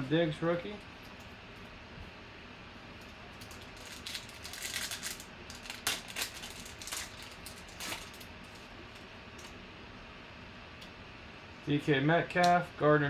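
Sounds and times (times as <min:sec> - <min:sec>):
foil wrapper crinkling: 0:03.3 - 0:08.7
foil tearing: 0:03.6 - 0:08.7.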